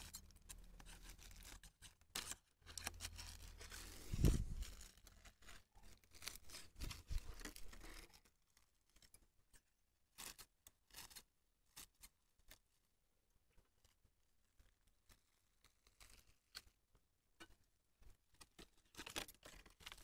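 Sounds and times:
plastic bag crinkling: 2.4 - 9.2.

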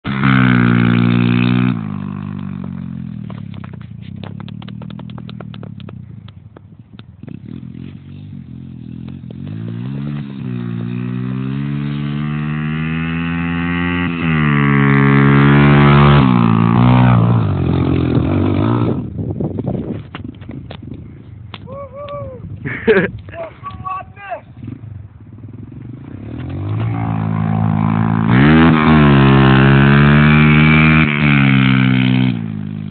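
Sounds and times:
motorcycle engine revving: 0.0 - 21.2, 24.4 - 32.9
clicks and rattles: 3.2 - 7.1.

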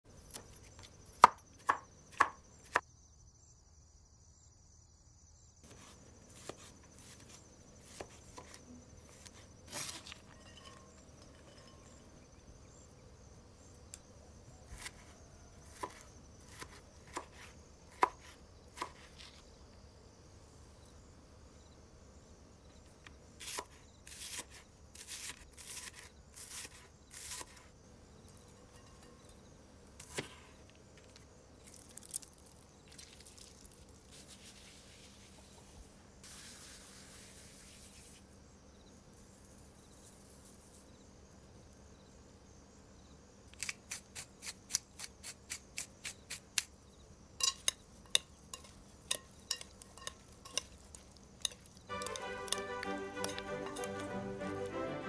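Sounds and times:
knife chopping on cutting board: 15.7 - 19.1.

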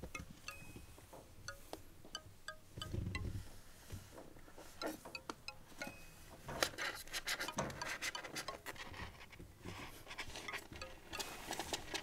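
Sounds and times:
tinkling chime-like music: 0.5 - 1.0, 5.8 - 6.3.

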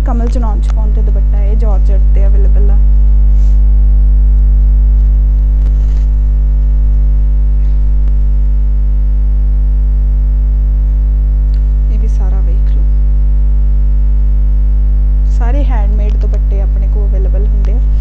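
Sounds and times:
electrical mains hum: 0.0 - 18.0
cloth rustling: 5.0 - 6.2.

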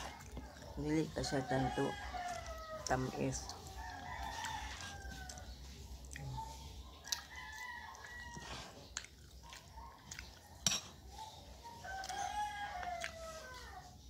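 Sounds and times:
rooster crowing: 1.2 - 5.6, 7.0 - 8.8, 11.6 - 14.0
spoon clinking against plate: 10.1 - 11.1.

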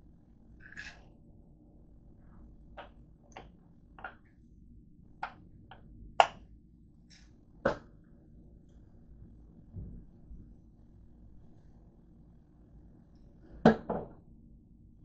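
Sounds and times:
faint low hum: 0.0 - 15.0.

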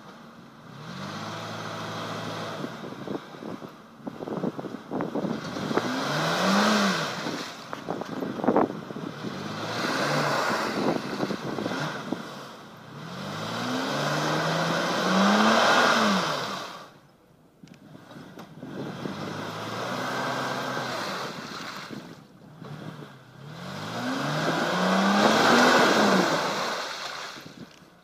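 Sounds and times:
engine revving hard: 0.6 - 2.7, 5.2 - 7.6, 9.1 - 16.9, 17.9 - 27.3.

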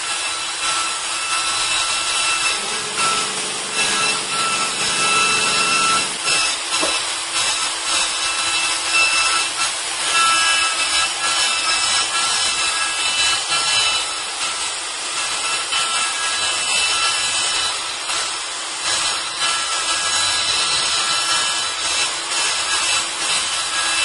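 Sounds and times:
hiss of cutting: 0.0 - 24.0
milling motor high whine: 0.1 - 14.9.

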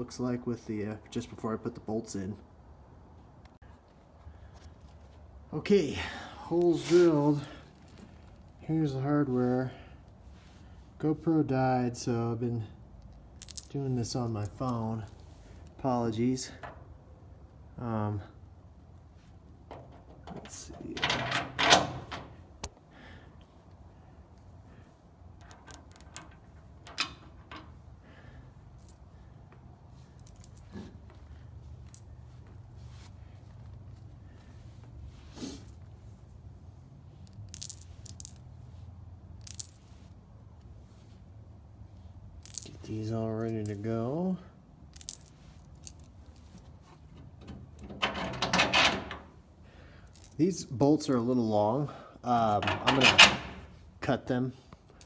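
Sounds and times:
bolts and nuts clinking: 6.7 - 8.6, 12.9 - 16.9, 19.6 - 22.4, 25.3 - 27.9, 28.5 - 36.2, 37.1 - 38.7, 39.4 - 40.7, 42.3 - 44.2, 44.9 - 49.4, 50.0 - 53.8.

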